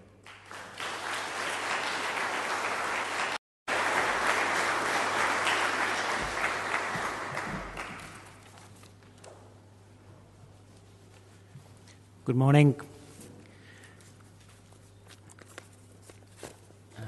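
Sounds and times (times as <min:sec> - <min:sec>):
audience applauding: 0:00.2 - 0:08.5.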